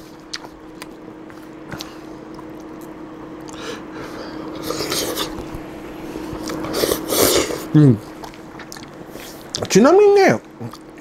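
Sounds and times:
low hum: 0.0 - 9.7
person slurping noodles: 6.4 - 7.8.

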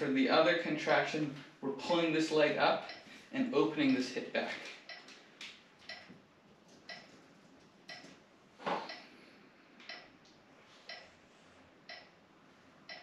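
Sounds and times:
steady ticking: 5.9 - 6.2, 9.8 - 11.1, 11.9 - 12.2.

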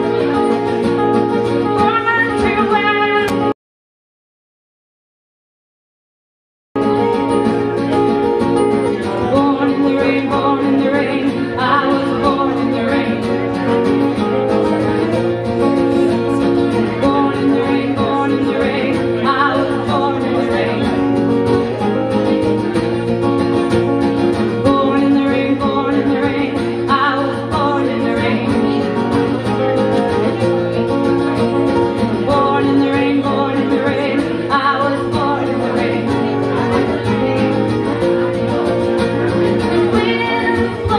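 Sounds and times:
acoustic guitar strumming: 0.0 - 3.6, 6.8 - 40.9
second guitar: 0.0 - 3.6, 6.8 - 40.9
woman singing: 1.7 - 3.5, 9.3 - 13.7, 16.7 - 21.1, 24.5 - 29.1, 32.1 - 36.8, 39.7 - 40.9.

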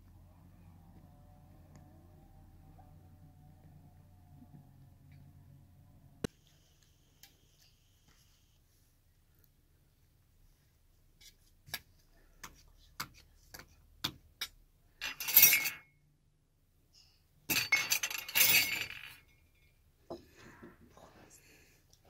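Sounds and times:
metal spoons clinking: 15.0 - 15.9, 17.5 - 19.6
spoons clattering on steel platter: 15.0 - 15.9, 17.5 - 19.4.

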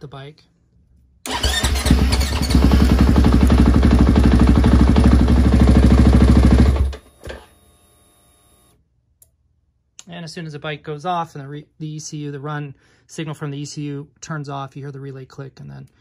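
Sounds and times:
motorcycle engine idling: 1.3 - 6.9.

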